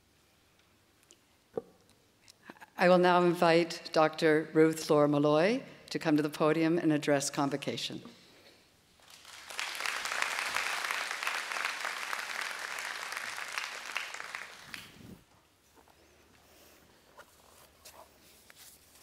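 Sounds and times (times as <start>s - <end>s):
audience applauding: 9.0s - 15.2s.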